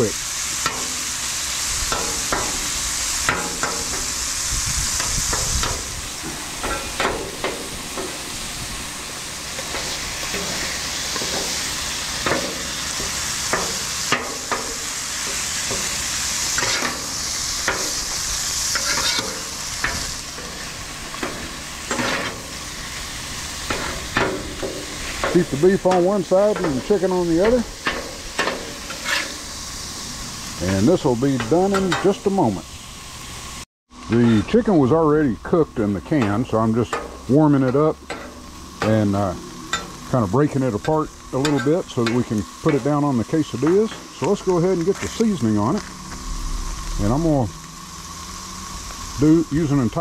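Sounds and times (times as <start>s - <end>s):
meat sizzling on a griddle: 0.0s - 50.0s
metal spatulas scraping griddle: 6.5s - 8.3s, 9.5s - 29.6s, 40.8s - 42.9s.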